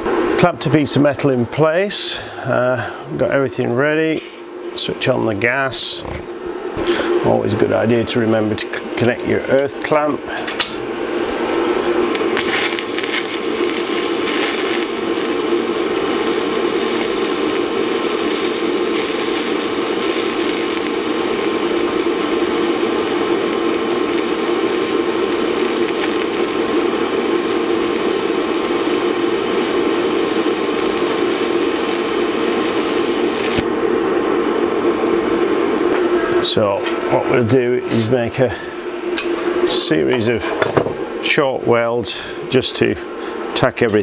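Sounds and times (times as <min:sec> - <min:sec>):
welding arc hissing: 0:12.1 - 0:33.7.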